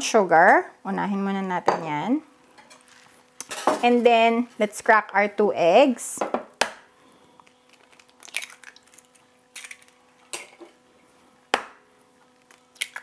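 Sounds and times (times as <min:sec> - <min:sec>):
eggshell crackling: 0:07.4 - 0:10.3, 0:12.3 - 0:13.0.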